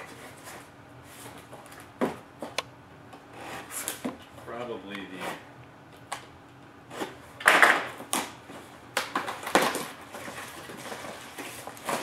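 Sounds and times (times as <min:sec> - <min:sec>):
cardboard flaps rustling: 0:08.0 - 0:12.0.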